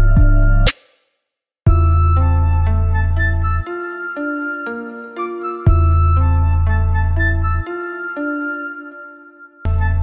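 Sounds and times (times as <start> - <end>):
deep bass: 0.0 - 0.7, 1.7 - 3.6, 9.7 - 10.0.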